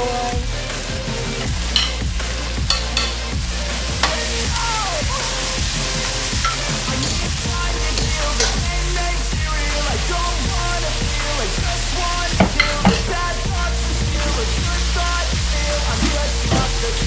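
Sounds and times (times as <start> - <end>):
meat sizzling in a wok: 2.7 - 8.6.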